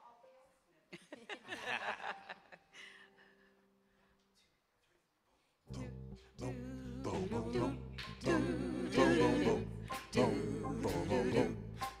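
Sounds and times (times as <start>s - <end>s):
voices singing together: 5.7s - 12.0s
worship band playing: 7.2s - 12.0s.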